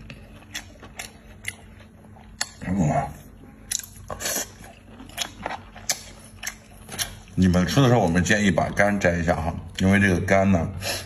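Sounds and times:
wet biting and chewing: 0:00.0 - 0:08.8.

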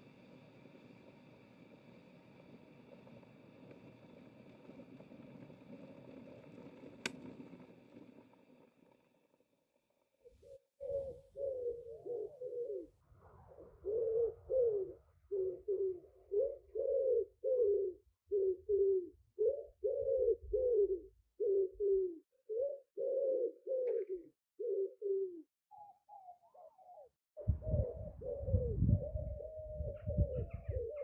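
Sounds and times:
pigeons cooing: 0:10.4 - 0:31.0.

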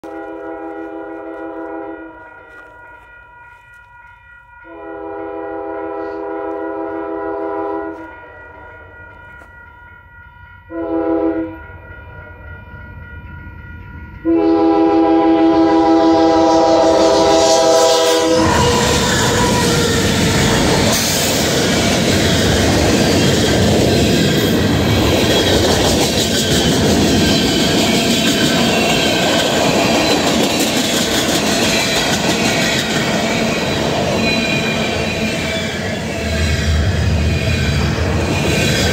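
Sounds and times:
locomotive air horn blasts: 0:00.0 - 0:02.8, 0:04.6 - 0:08.5, 0:10.7 - 0:11.6, 0:14.2 - 0:20.2
train rumbling past: 0:04.6 - 0:38.9.

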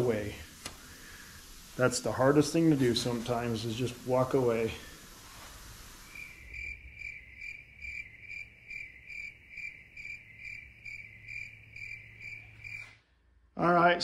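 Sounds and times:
cricket chirping: 0:05.8 - 0:13.1.

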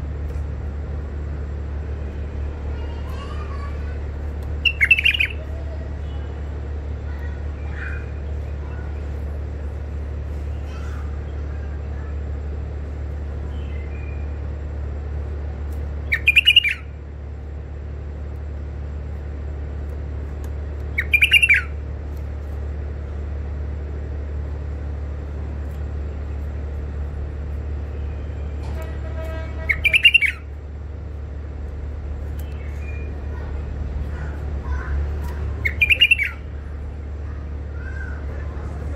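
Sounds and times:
steady low hum: 0:00.0 - 0:38.9
bulbul calling: 0:04.6 - 0:05.5, 0:16.0 - 0:17.0, 0:20.8 - 0:21.8, 0:27.9 - 0:30.6, 0:34.1 - 0:36.6.

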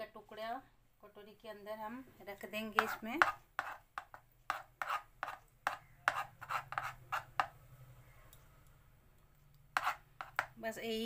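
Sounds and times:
metal spoon scraping metal bowl: 0:02.7 - 0:07.6, 0:09.8 - 0:10.6.

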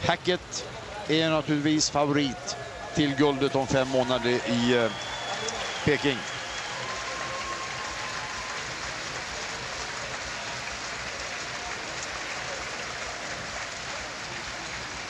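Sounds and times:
spectators applauding: 0:03.0 - 0:15.0.

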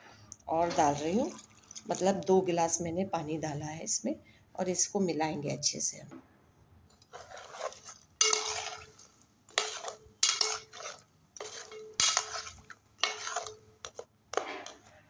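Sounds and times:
metal spoon scraping a pot: 0:06.9 - 0:15.0.

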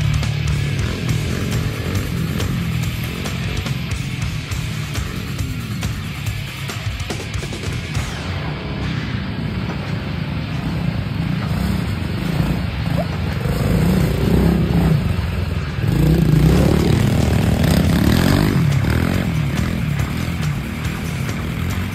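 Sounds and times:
dirt bike engine revving: 0:00.0 - 0:21.9.

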